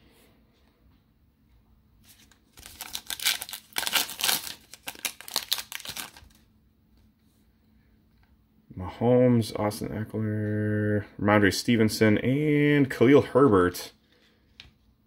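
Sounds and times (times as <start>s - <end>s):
foil wrapper crinkling and tearing: 2.1s - 6.4s.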